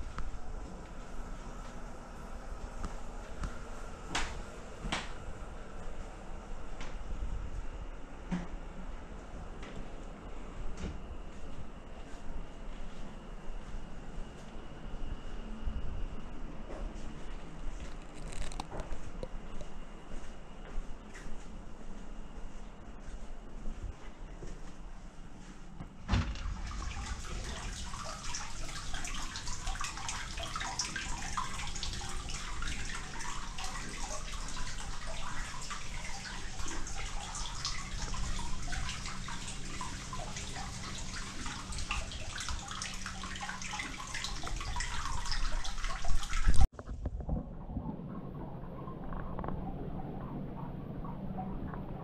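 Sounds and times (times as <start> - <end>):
water pouring into tub: 26.1 - 46.7.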